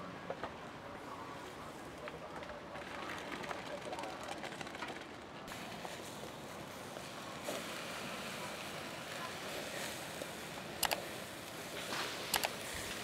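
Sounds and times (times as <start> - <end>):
fish sizzling over charcoal: 5.5 - 13.0
sharp clicks: 10.8 - 11.0, 12.3 - 12.6.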